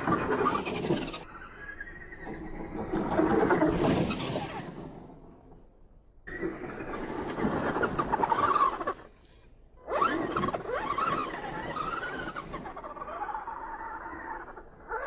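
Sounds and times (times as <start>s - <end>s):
tyres scrabbling on dirt: 0.0s - 1.3s, 10.0s - 12.8s
rc truck motor whine: 0.0s - 5.3s, 6.3s - 9.1s, 9.8s - 15.0s.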